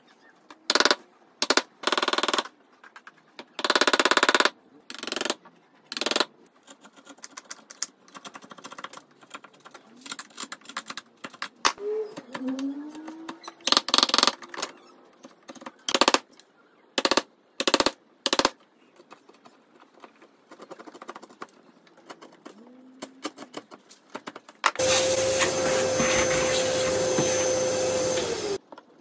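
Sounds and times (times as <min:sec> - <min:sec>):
vacuum cleaner humming: 0:24.8 - 0:28.6.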